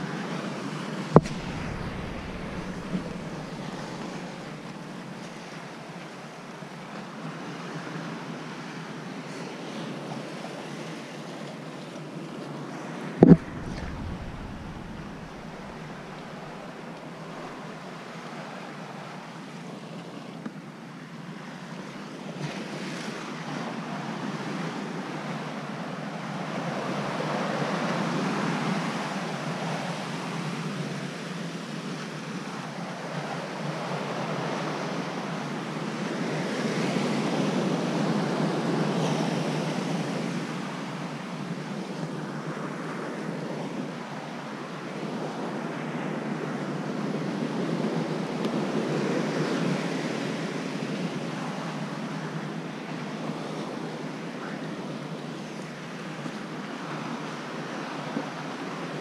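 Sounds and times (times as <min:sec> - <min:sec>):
wind rumbling on microphone: 0:01.0 - 0:05.2, 0:13.0 - 0:17.9
surf breaking on rocks: 0:01.2 - 0:04.7, 0:13.2 - 0:17.5.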